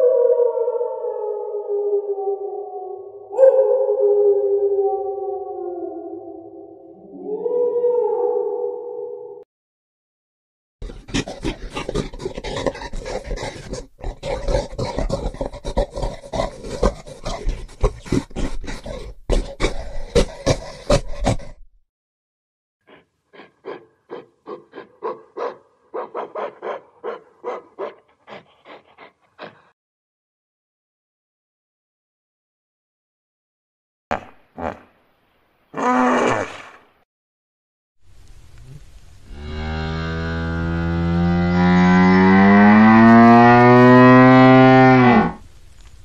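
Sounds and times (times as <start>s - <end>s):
gorilla panting calls: 10.8s - 21.6s, 22.9s - 29.7s
hippopotamus growl: 10.8s - 21.6s.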